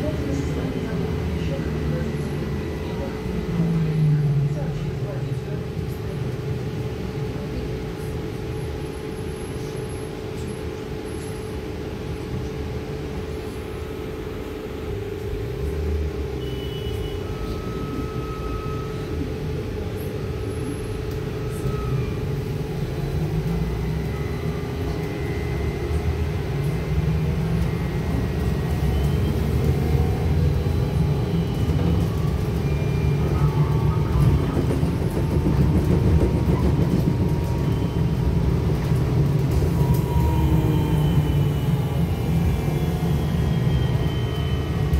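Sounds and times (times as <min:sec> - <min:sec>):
trolleybus electrical hum: 0:00.0 - 0:44.9
tyres rumbling on road: 0:14.9 - 0:44.9.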